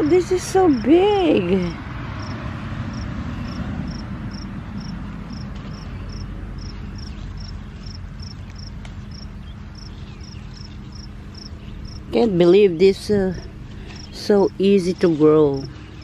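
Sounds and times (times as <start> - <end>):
low steady rumble: 0.0 - 16.0
cricket chirping: 2.2 - 12.1.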